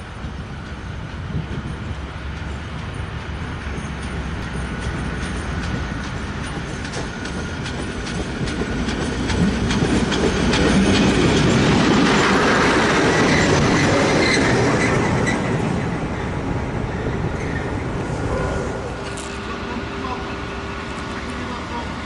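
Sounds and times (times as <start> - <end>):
diesel locomotive engine rumble: 0.0 - 22.0
wheels clicking over rail joints: 0.1 - 15.9.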